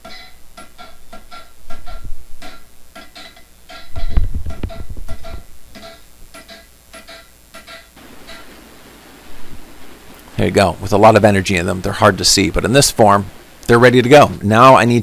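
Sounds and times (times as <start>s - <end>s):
ringing anvil tone: 0.0s - 8.6s.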